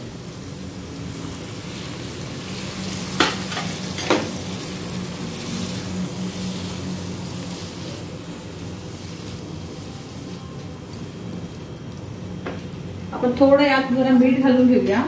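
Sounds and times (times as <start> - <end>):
vegetables sizzling in hot oil: 0.0 - 11.2.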